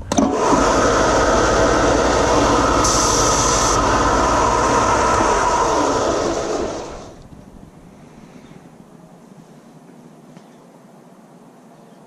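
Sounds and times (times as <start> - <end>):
belt sander whirring: 0.0 - 7.3
metal grinding hiss: 1.2 - 7.2.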